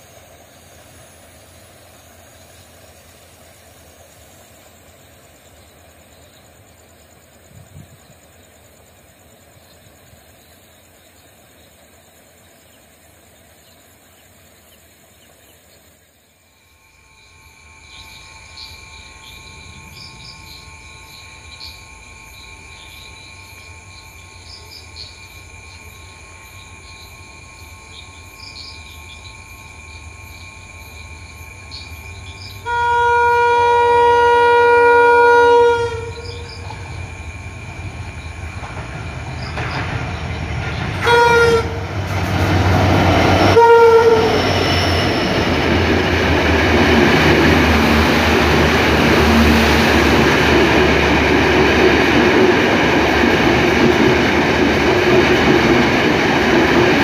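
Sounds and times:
diesel locomotive approaching: 0.0 - 57.0
loud train horn blast: 32.5 - 36.8, 41.0 - 42.7, 43.3 - 45.5, 47.6 - 50.4.

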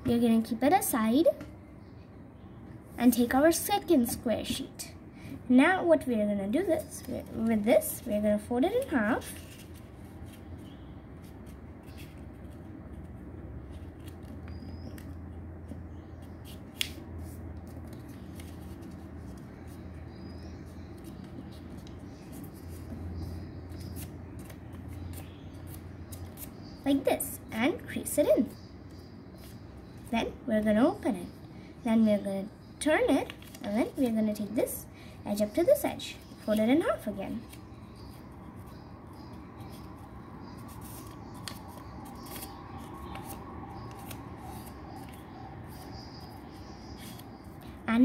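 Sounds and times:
steady low hum: 0.0 - 48.0
paper rustling and folding: 6.8 - 26.6, 33.2 - 34.2, 36.2 - 47.6.

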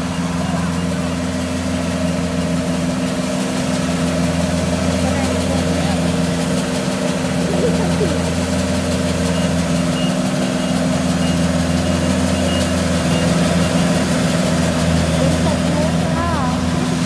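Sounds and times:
diesel engine running: 0.0 - 17.0
faint high beep: 9.2 - 14.0.

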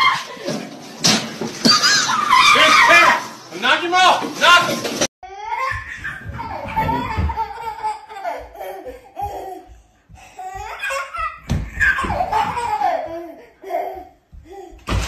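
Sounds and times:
baby laughing: 5.6 - 9.7, 10.5 - 14.6.

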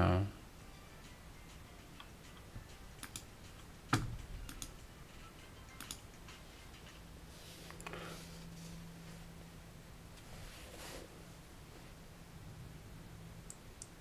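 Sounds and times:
mouse and keyboard clicks: 5.8 - 6.0.

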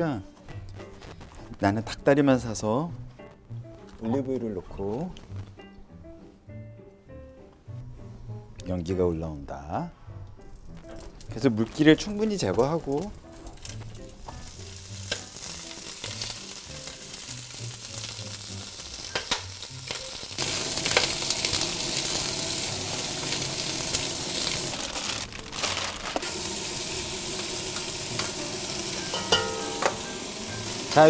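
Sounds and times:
chicken sizzling in oil: 12.3 - 31.0
tongs knocking in pot: 29.1 - 30.2.

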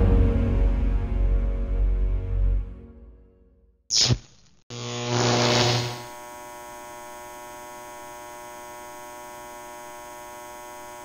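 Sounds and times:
steady electrical hum: 4.7 - 11.0.

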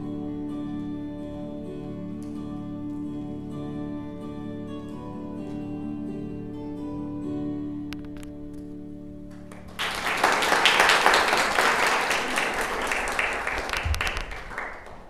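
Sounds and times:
held music chord: 0.0 - 9.6
audience applause: 9.3 - 15.0.

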